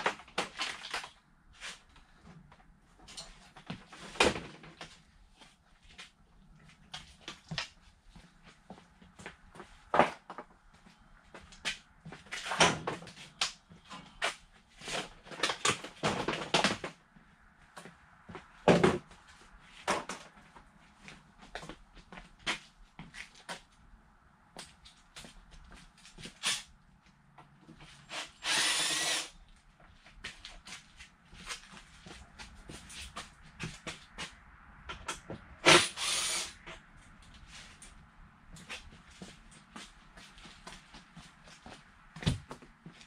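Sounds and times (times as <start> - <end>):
power drill running: 28.1 - 29.4, 35.6 - 36.6.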